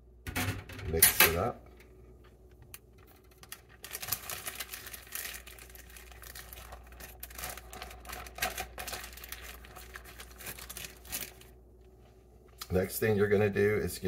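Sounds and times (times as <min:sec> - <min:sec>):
plastic bag crinkling: 0:02.9 - 0:11.6.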